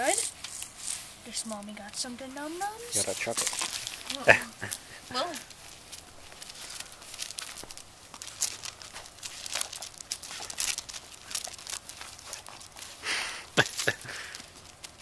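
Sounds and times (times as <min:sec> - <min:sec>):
dog paws scrabbling on asphalt: 0:00.0 - 0:15.0.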